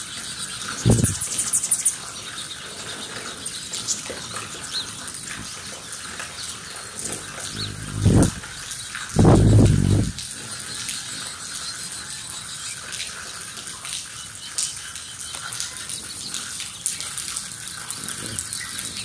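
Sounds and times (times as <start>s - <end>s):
hummingbird wings humming: 0.8s - 1.5s, 6.9s - 10.2s
hummingbird chips and chatter: 7.0s - 10.2s.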